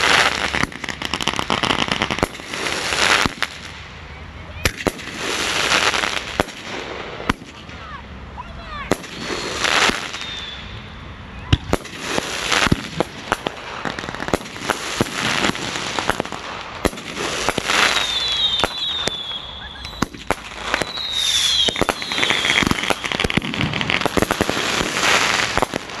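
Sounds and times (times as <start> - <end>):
firework bursts crackling and fizzing: 0.0 - 10.8, 11.5 - 26.0
high whistling tones: 9.2 - 11.6, 17.9 - 23.2.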